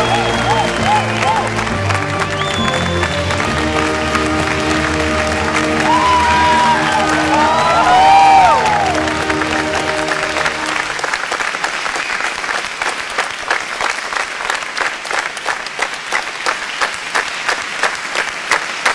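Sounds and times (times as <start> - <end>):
music: 0.0 - 11.0
crowd applause: 0.0 - 18.9
sharp hand claps: 0.0 - 18.9.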